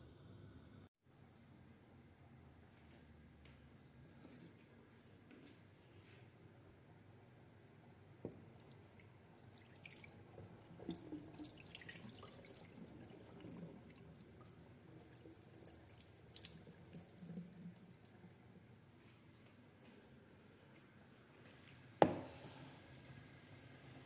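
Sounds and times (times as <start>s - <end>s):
water trickling and dripping into sink: 8.3s - 18.4s.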